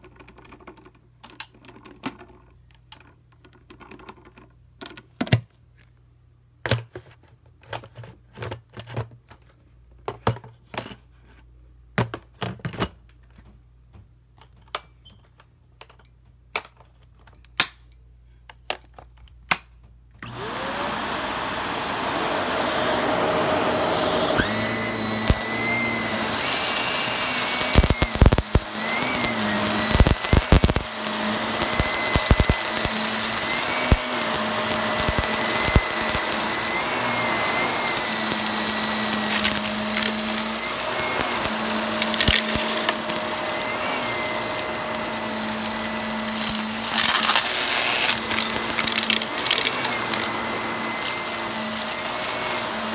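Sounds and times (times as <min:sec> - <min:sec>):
vacuum cleaner motor whine: 0:20.2 - 0:52.9
debris crackling in vacuum brushroll: 0:25.2 - 0:52.9.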